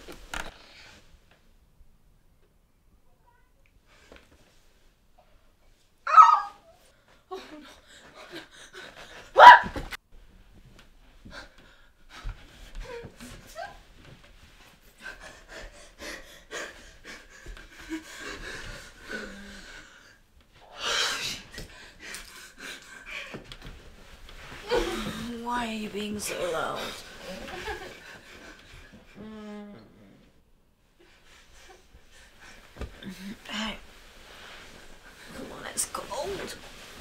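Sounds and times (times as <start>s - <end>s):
bedding rustling: 6.9s - 20.6s, 21.4s - 29.2s, 30.8s - 37.0s.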